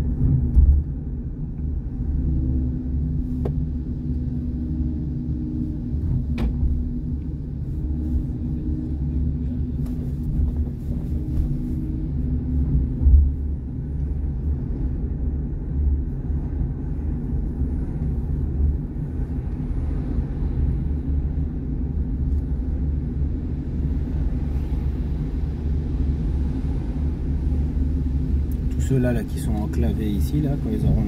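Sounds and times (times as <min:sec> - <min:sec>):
car interior rumble: 0:00.0 - 0:31.0
low thump: 0:00.2 - 0:01.0, 0:06.0 - 0:06.9.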